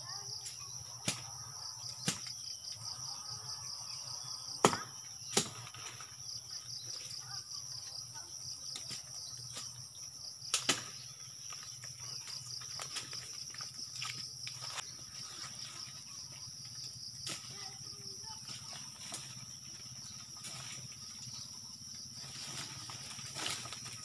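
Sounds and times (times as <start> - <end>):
insect chirring: 0.0 - 24.0.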